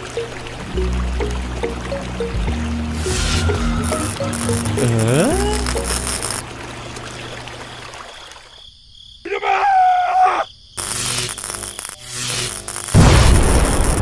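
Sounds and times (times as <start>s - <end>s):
rising pitched glide effect: 0.8s - 6.4s
wavering cartoon cry: 9.3s - 10.5s.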